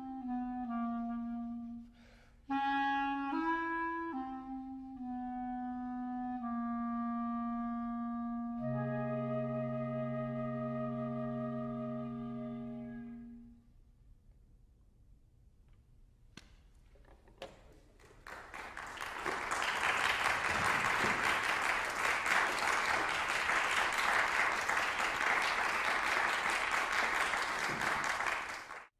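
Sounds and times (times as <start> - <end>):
audience applauding: 17.8 - 28.9.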